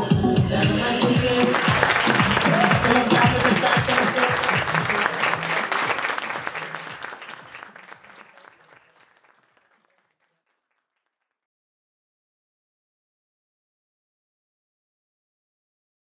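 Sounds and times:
audience applause: 0.8s - 10.8s.

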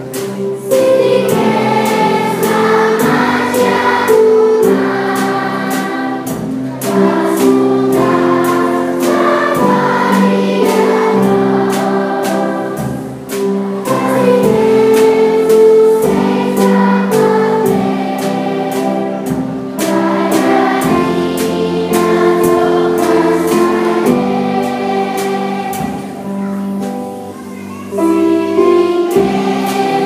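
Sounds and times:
children's choir singing: 0.0s - 30.0s
drum kit: 0.0s - 30.0s
guitar: 0.0s - 30.0s.

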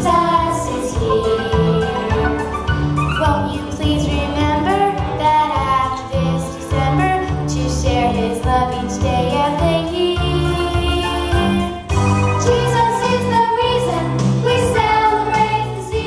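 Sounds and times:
bass and drum beat: 0.0s - 16.0s
woman singing: 3.1s - 16.0s.

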